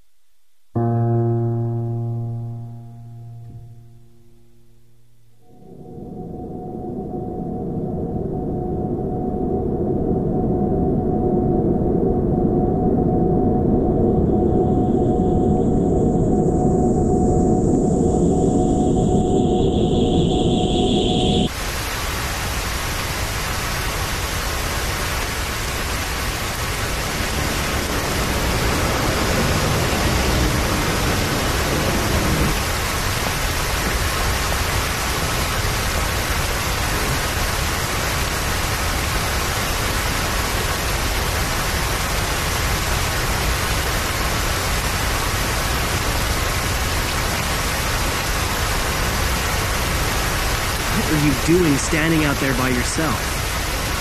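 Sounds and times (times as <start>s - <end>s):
heavy rain: 19.0s - 54.0s.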